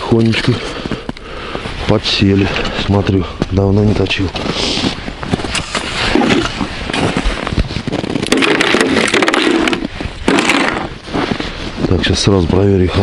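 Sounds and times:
rapid sharp clicks and crackle: 8.1 - 10.9.

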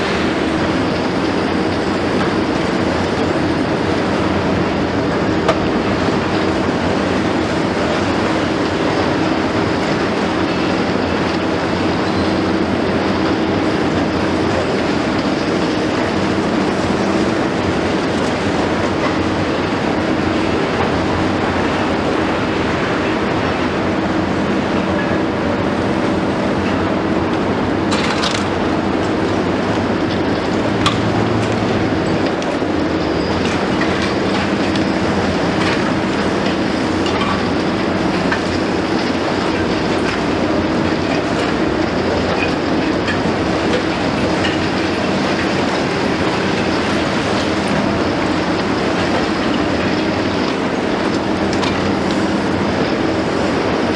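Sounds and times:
diesel engine humming: 0.0 - 53.9.

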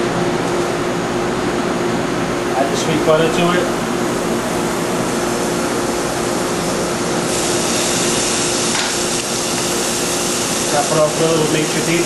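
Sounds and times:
steady hum: 0.0 - 12.0
steak sizzling on a platter: 7.3 - 12.0.

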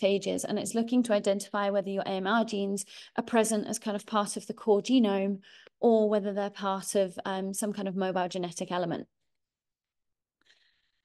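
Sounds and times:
faint breath: 5.4 - 5.8, 10.4 - 11.0.

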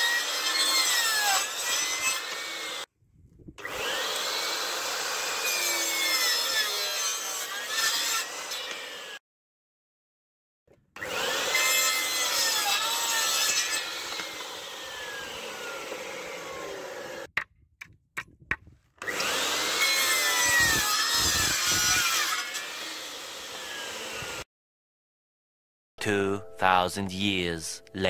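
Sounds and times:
mitre saw cutting wood: 0.0 - 2.9, 3.6 - 9.2, 11.0 - 17.4, 18.2 - 24.5.

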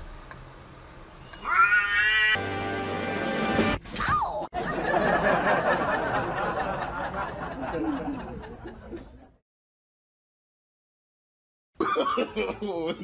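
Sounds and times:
people laughing: 4.6 - 9.4, 12.0 - 13.0.

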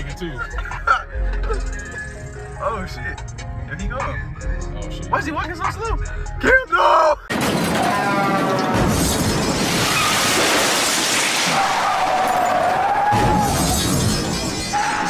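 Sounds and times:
music: 0.0 - 7.3
crash sound effect: 7.4 - 15.0.

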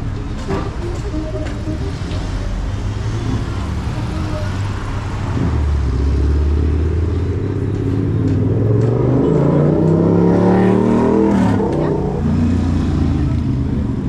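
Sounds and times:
vehicle engine accelerating: 0.6 - 14.0.

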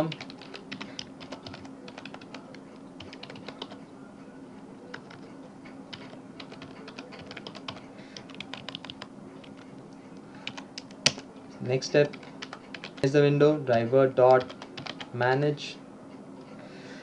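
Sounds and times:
typing on computer keyboard: 0.0 - 3.8, 4.9 - 5.3, 5.9 - 9.7, 10.4 - 11.2, 12.0 - 13.1, 14.3 - 15.1
faint hum: 0.0 - 17.0.

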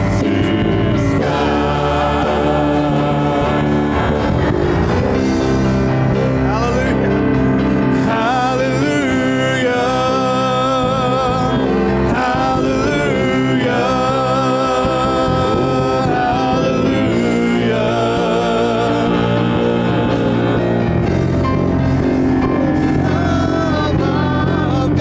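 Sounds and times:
gospel band playing: 0.0 - 25.0
singers holding notes with vibrato: 0.0 - 25.0.

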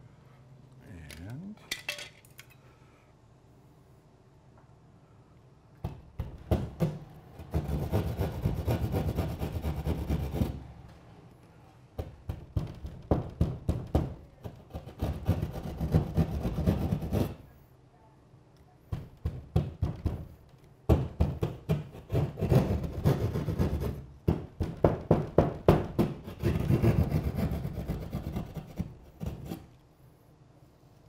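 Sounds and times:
hand saw cutting drywall: 7.5 - 10.6, 14.4 - 17.4, 21.3 - 24.0, 25.8 - 29.7.

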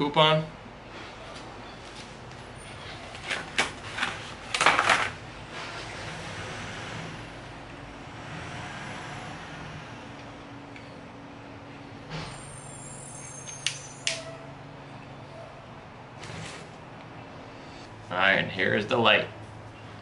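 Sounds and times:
packaging rustling: 3.0 - 5.2.

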